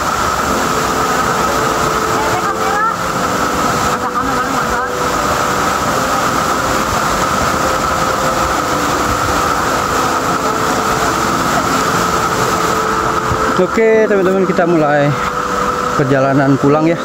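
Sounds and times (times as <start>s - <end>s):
rushing waterfall: 0.0s - 17.0s.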